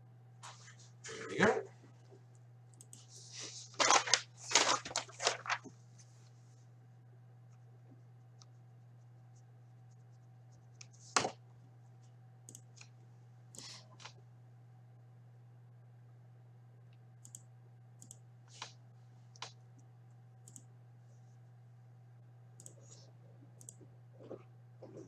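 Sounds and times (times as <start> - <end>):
steady low hum: 0.0 - 25.0
rustling crinkling handling noises: 3.0 - 6.6.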